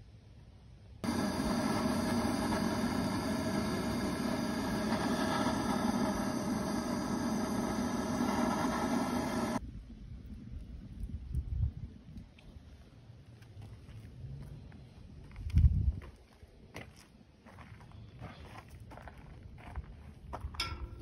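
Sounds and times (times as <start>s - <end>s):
propane torch roaring: 1.0s - 9.6s.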